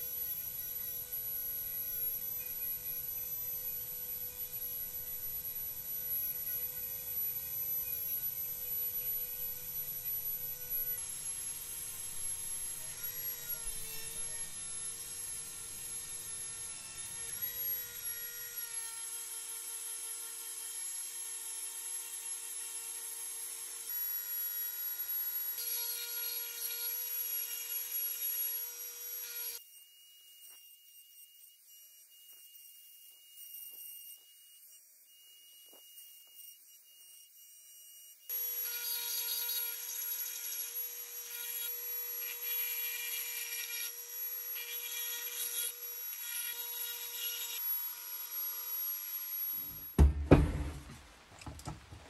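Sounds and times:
rotary tool grinding rust: 38.3s - 50.0s.

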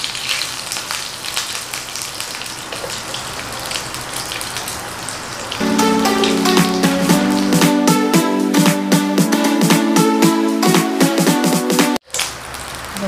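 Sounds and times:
pork sizzling on a grill: 0.0s - 5.6s, 12.0s - 13.0s.

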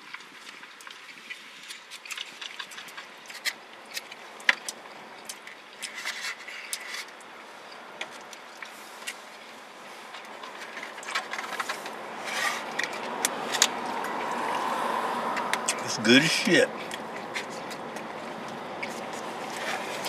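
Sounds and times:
chewing: 0.0s - 15.9s, 16.7s - 20.0s
forks scraping food containers: 10.2s - 13.7s.

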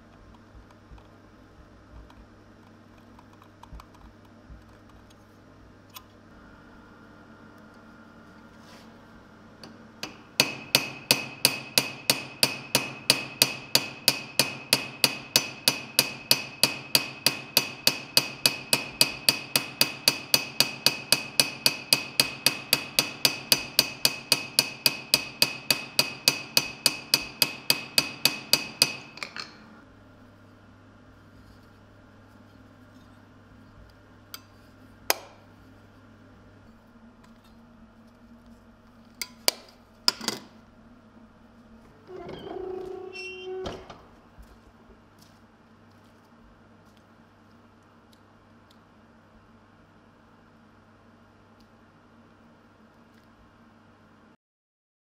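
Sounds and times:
small hammer tapping on metal: 9.6s - 29.6s.

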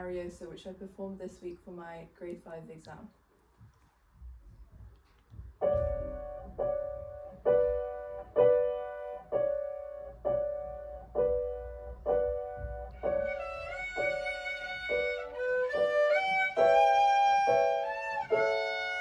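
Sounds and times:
grand piano chords: 5.4s - 19.0s.

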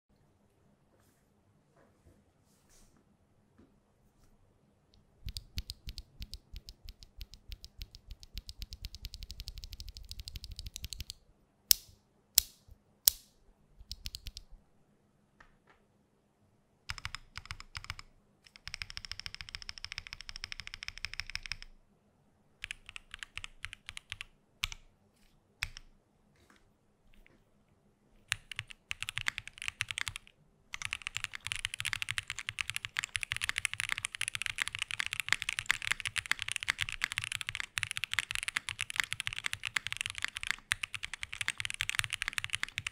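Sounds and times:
mechanical keyboard typing: 5.2s - 11.8s, 13.8s - 14.5s, 16.9s - 21.7s, 22.6s - 24.8s, 25.6s - 25.9s, 28.2s - 42.9s.

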